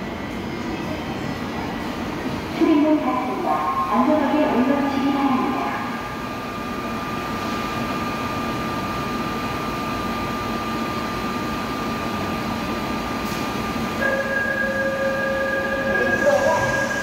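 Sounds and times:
train equipment hum and whoosh: 0.0s - 17.0s.

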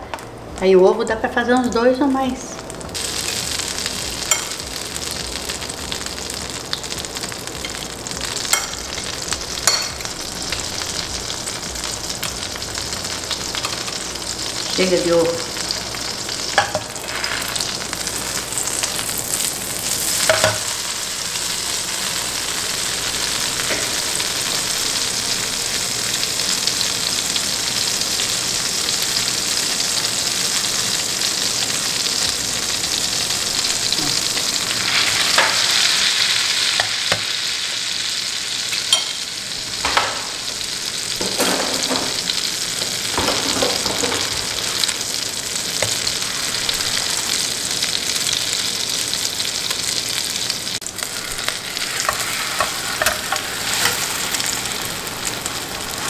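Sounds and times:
butter sizzling in frying pan: 1.6s - 56.0s
utensils clicking on pan: 8.5s - 10.1s, 38.7s - 39.2s, 51.2s - 54.6s.

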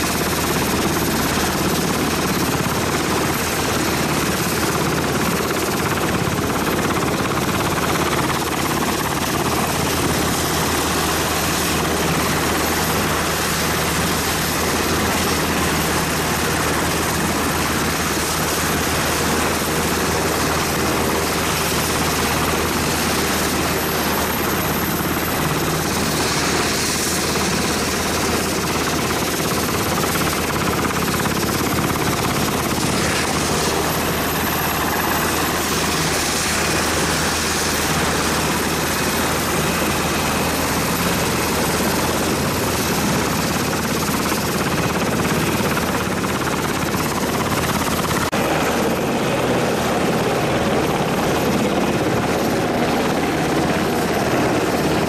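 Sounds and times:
helicopter rotors and engines: 0.0s - 55.0s.

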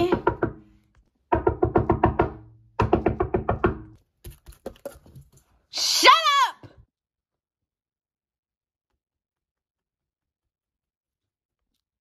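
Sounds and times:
cartoon scurrying footsteps: 3.9s - 5.7s, 8.4s - 12.0s.

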